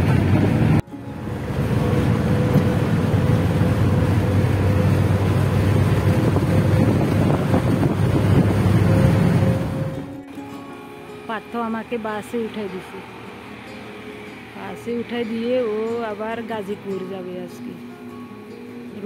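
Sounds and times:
wind rushing past: 0:00.0 - 0:10.2
bus engine and road rumble: 0:00.0 - 0:19.0.

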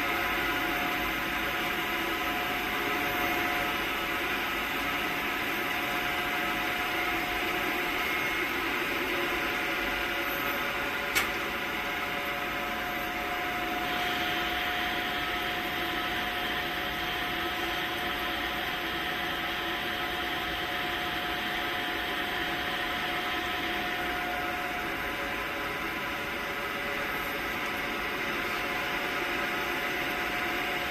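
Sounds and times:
machinery hum and hiss: 0:00.0 - 0:30.9
sharp click: 0:11.1 - 0:11.4.

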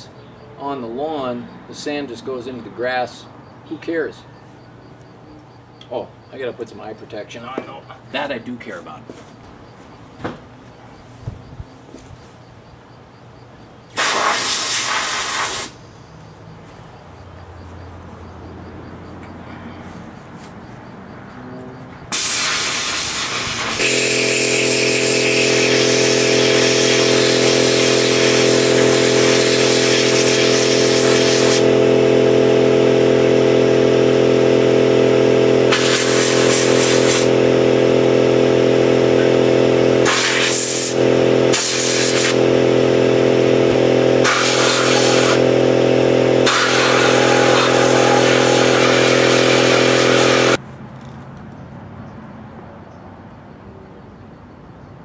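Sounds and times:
air compressor droning: 0:00.0 - 0:50.6
sandblast gun hissing: 0:13.9 - 0:15.9, 0:22.1 - 0:32.2, 0:35.2 - 0:50.6.

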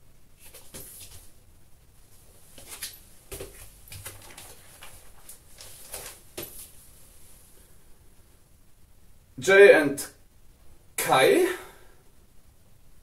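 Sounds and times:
plastic sleeve crinkling: 0:02.6 - 0:06.8.

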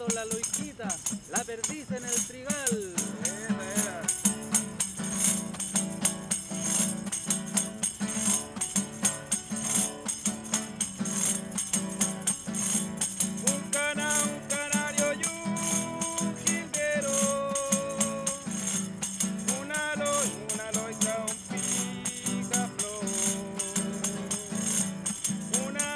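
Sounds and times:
man singing: 0:00.0 - 0:04.7, 0:13.4 - 0:25.9
hand tambourine jingling and tapping: 0:00.0 - 0:25.9
strummed acoustic guitar: 0:00.0 - 0:25.9.

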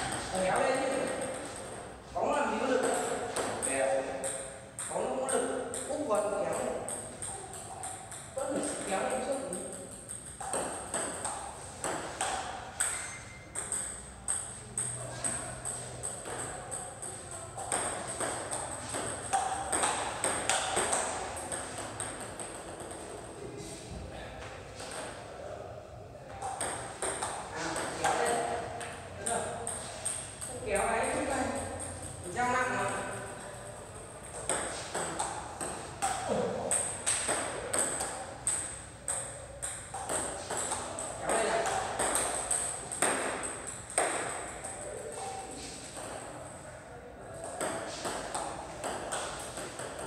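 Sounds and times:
table tennis balls clicking: 0:00.0 - 0:01.8, 0:02.6 - 0:23.4, 0:26.3 - 0:46.5, 0:47.4 - 0:50.0.

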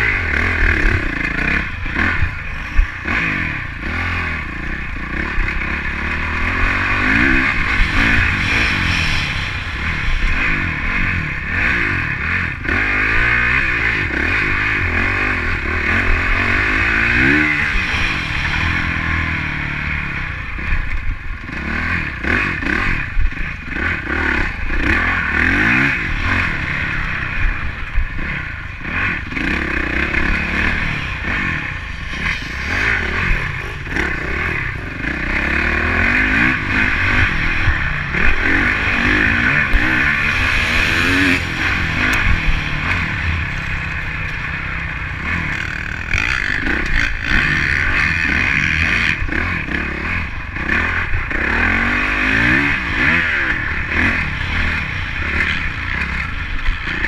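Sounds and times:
motocross bike engine accelerating: 0:00.0 - 0:57.0.

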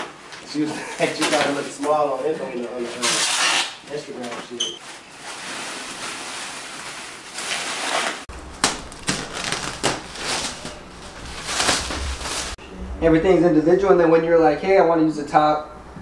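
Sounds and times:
plastic wrap rustling and crinkling: 0:00.0 - 0:12.6.

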